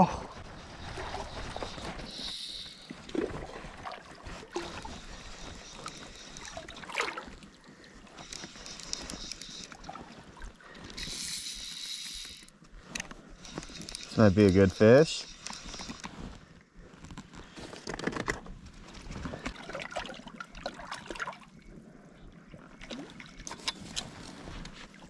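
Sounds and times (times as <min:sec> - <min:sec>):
water sloshing and trickling: 0:00.2 - 0:11.0, 0:17.8 - 0:25.0.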